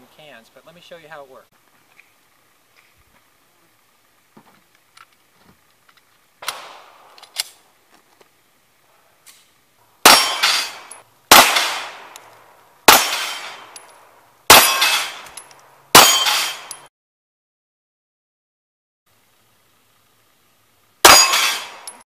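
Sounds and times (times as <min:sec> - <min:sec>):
pistol shots: 0:06.4 - 0:07.6, 0:10.0 - 0:13.8, 0:14.5 - 0:16.9, 0:21.0 - 0:21.9
steel target clanging: 0:10.0 - 0:12.0, 0:12.9 - 0:13.9, 0:14.5 - 0:16.9, 0:21.0 - 0:22.0.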